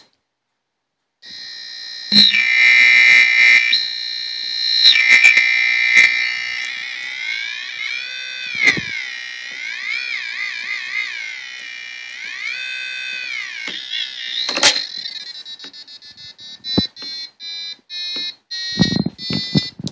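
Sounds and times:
gliding electronic tone: 1.3s - 17.0s
rapid short electronic beeps: 2.1s - 2.5s.

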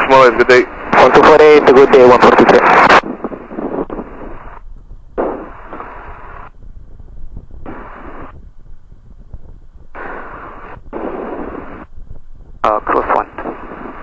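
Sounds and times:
radio hiss bursts: 0.0s - 4.6s, 5.2s - 6.5s, 7.6s - 8.4s, 9.9s - 11.9s, 12.6s - 14.0s
aircraft engine rumble: 0.0s - 14.0s.

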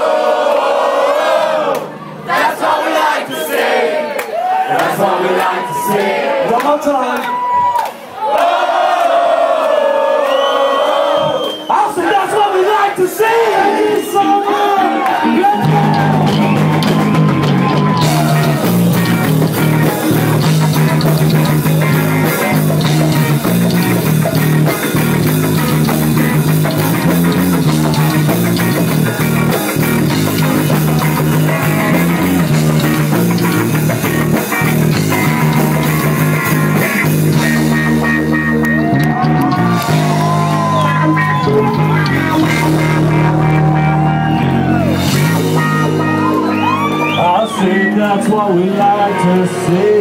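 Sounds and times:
live rock band playing: 14.3s - 50.0s
high guitar line with pitch bends: 14.4s - 50.0s.

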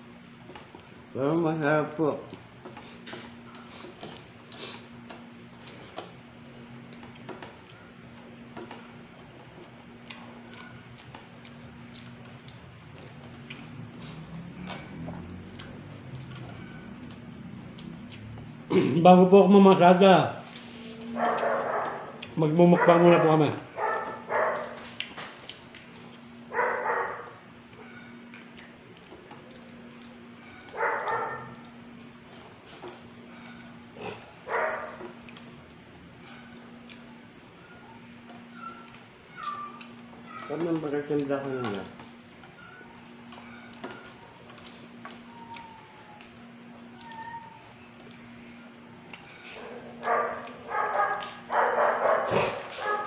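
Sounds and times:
steady low hum: 0.0s - 53.0s
chewing clicks and smacks: 6.8s - 8.9s, 9.5s - 18.6s, 21.2s - 22.4s, 23.8s - 37.4s, 38.0s - 42.7s, 43.3s - 48.4s, 49.0s - 53.0s
dog barking: 21.2s - 24.8s, 26.5s - 28.0s, 30.7s - 31.6s, 34.4s - 35.0s, 49.6s - 53.0s.

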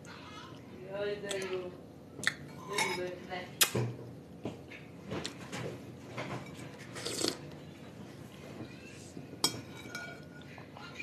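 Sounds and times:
person chewing and slurping: 6.9s - 7.4s
spoon clinking on bowl: 9.4s - 10.5s.

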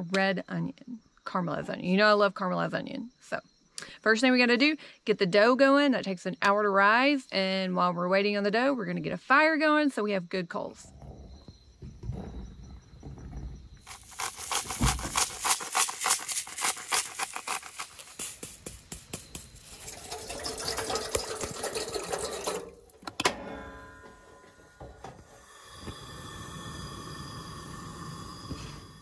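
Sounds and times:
fast run of clicks: 13.9s - 19.8s
water pouring into a kettle: 19.7s - 22.9s.

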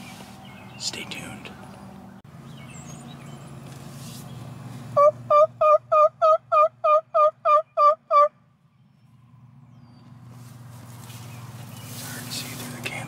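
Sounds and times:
turkey yelps: 5.0s - 8.4s.

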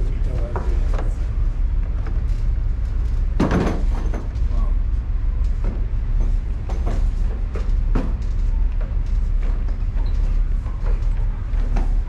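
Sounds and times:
voices: 0.0s - 1.2s
low machinery hum: 0.0s - 12.0s.

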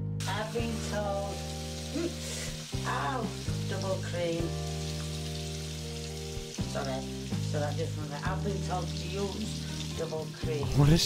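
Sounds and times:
music with long held notes: 0.0s - 11.0s
bacon sizzling in frying pan: 0.2s - 11.0s
woman speaking: 2.9s - 4.6s, 6.7s - 10.7s.

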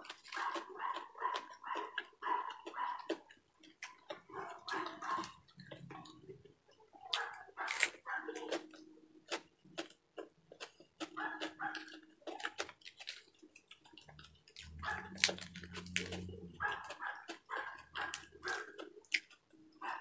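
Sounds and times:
lettuce crunching: 0.0s - 6.4s, 7.0s - 20.0s
wet chewing: 0.0s - 20.0s
low drawn-out hum: 14.0s - 16.9s.

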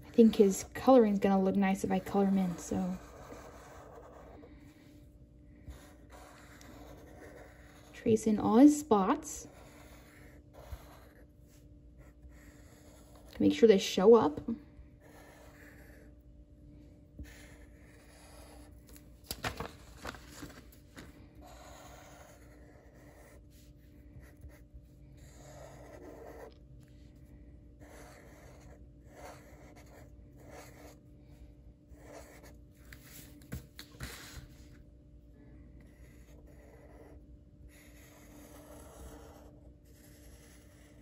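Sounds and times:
marker scratching on paper: 0.0s - 4.7s, 5.6s - 16.1s, 17.2s - 19.0s, 21.4s - 26.6s, 27.8s - 31.0s, 31.9s - 34.6s, 35.9s - 41.0s.

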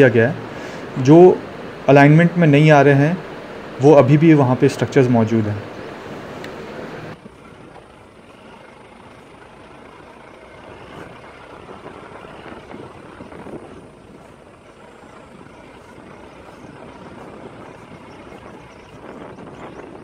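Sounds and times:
vehicle engine: 0.0s - 20.0s
tyre rumble on dirt road: 7.1s - 20.0s.

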